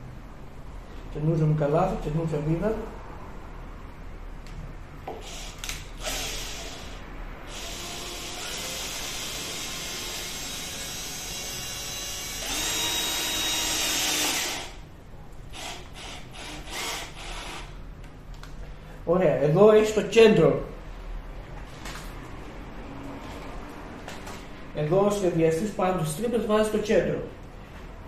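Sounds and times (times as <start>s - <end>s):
cordless drill driving screw: 5.1s - 14.8s, 15.5s - 17.7s.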